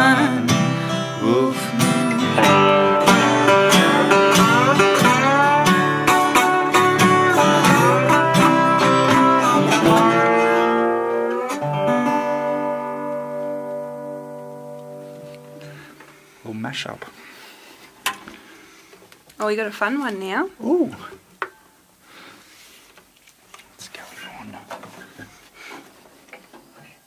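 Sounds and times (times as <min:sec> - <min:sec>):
guitar chord ringing: 0:00.0 - 0:16.0
guitar plucked notes: 0:00.0 - 0:16.0.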